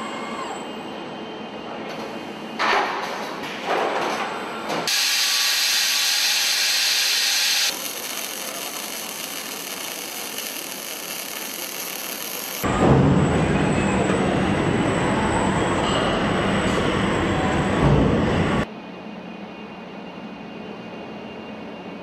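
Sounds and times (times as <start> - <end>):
arc welding hiss: 4.9 - 12.6
machine noise surges: 4.9 - 18.7.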